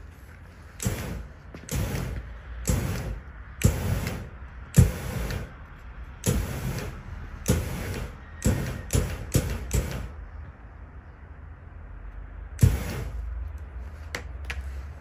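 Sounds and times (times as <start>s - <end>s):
flame machine jets firing: 0.0s - 10.4s, 12.5s - 13.9s.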